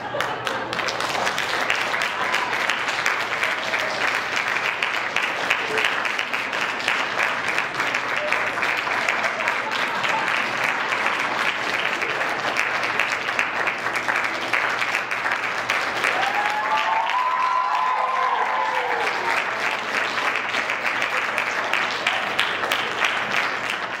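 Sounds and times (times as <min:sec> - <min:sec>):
audience applauding: 0:00.0 - 0:24.0
person cheering: 0:16.1 - 0:19.3.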